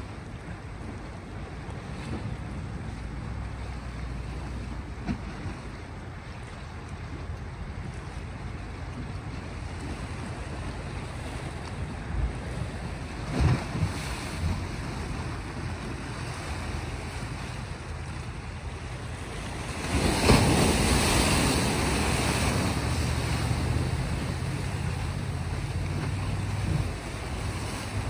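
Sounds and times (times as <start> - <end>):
wave breaking: 0.0 - 28.0
waves washing on rocky shore: 0.0 - 28.0
wind rumble on microphone: 0.0 - 28.0.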